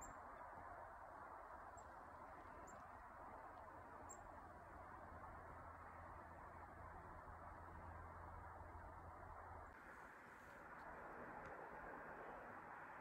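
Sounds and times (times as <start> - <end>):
small bird chirping: 4.0 - 4.3.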